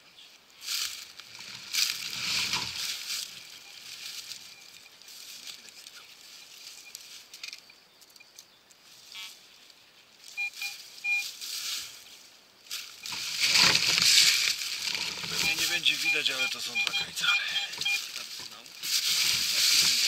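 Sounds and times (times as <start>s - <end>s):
dry leaves rustling and crunching: 0.5s - 7.6s, 8.8s - 20.0s
metal detector beeps: 3.3s - 5.0s, 6.4s - 8.3s, 10.3s - 11.3s, 15.0s - 20.0s.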